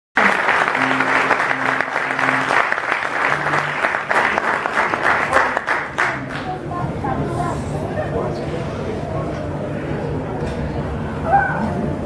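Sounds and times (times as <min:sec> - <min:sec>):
audience applauding: 0:00.2 - 0:06.6.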